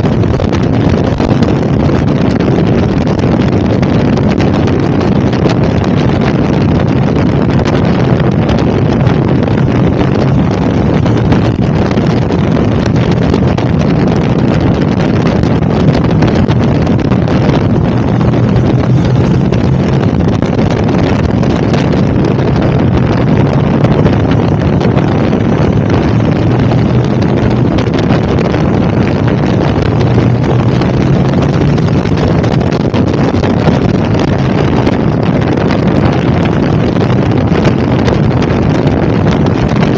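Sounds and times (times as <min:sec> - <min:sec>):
motorcycle engine cruising: 0:00.0 - 0:39.9
wind rush on microphone: 0:00.0 - 0:39.9.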